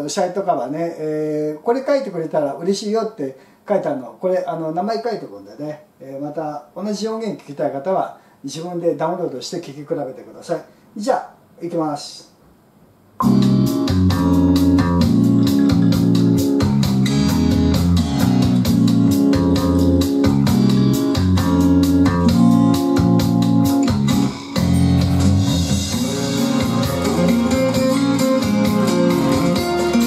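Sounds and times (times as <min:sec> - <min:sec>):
keyboard music over a steady beat: 0:13.2 - 0:30.0.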